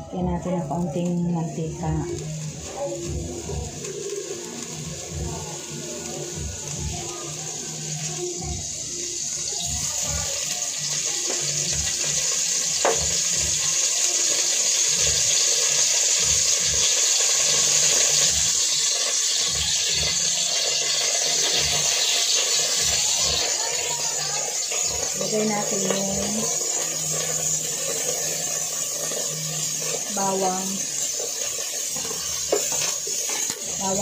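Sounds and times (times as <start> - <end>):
oil hissing and sizzling in pot: 0.0 - 34.0.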